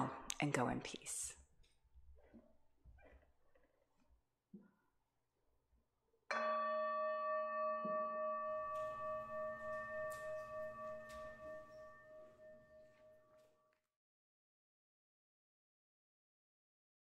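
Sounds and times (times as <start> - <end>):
singing bowl ringing: 6.3 - 13.4.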